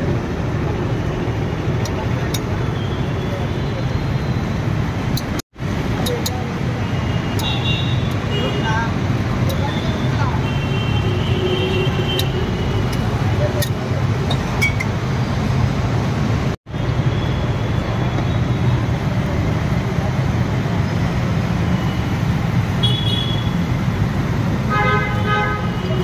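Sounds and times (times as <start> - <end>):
roadside traffic: 0.0 - 26.0
vehicle horn honking: 22.8 - 23.6, 24.7 - 26.0.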